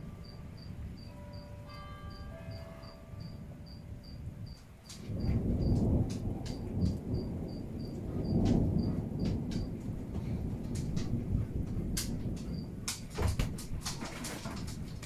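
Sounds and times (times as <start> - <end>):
cricket chirping: 0.0 - 9.9, 11.8 - 12.8
thunder rumbling: 0.0 - 15.0.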